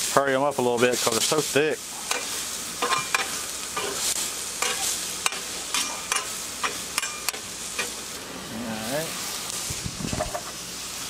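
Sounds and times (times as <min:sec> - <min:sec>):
vegetables sizzling on a griddle: 0:00.0 - 0:11.0
metal spatula scraping steel: 0:02.0 - 0:08.0.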